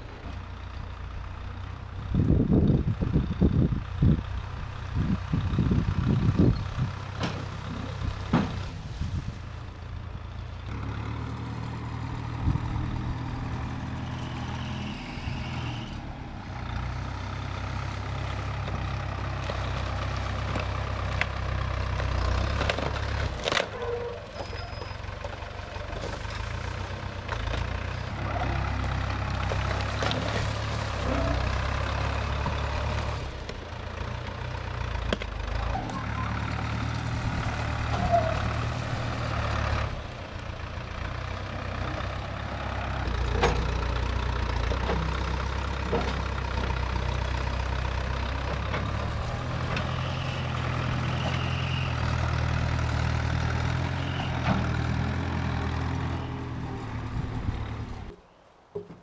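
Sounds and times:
backhoe engine running: 0.0 - 59.0
bucket pushing through dirt: 29.3 - 32.8.

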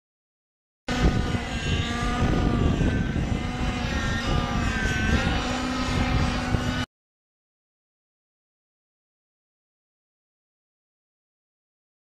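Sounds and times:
model helicopter engine and rotors: 0.9 - 6.9.

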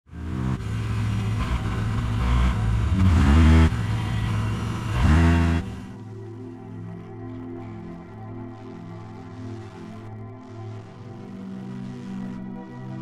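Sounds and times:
paramotor engine revving: 0.1 - 6.0
soft music: 2.4 - 13.0.

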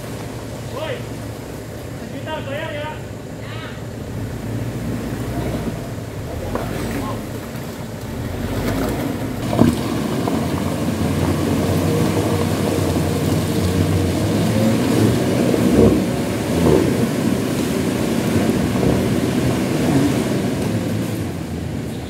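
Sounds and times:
diesel engine driving off-road: 0.0 - 22.0
vehicle jolting thumps: 4.8 - 22.0.

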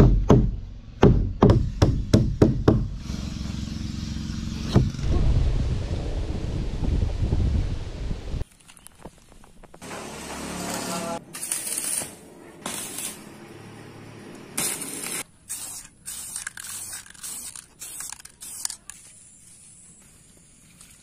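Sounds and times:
spray-paint can hissing: 14.6 - 21.0.

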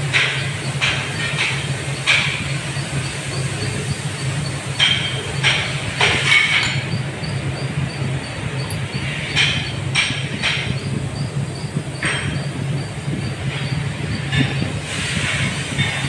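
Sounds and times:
fast regular ticking: 0.0 - 16.0
lathe machinery hum: 0.0 - 16.0
metallic clanks and scrapes: 4.8 - 7.0.

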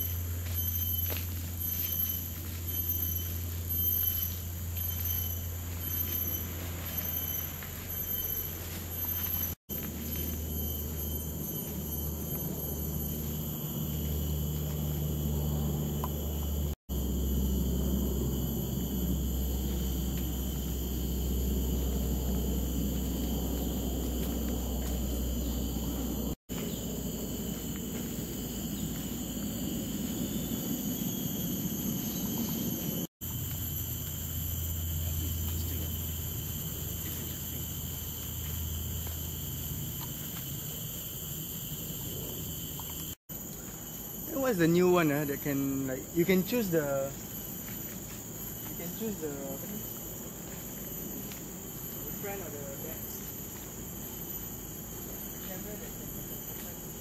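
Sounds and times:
thin high drone: 0.0 - 37.6.

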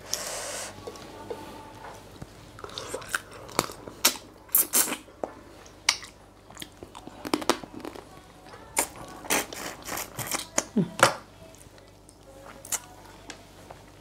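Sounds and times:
chewing: 2.6 - 10.7.

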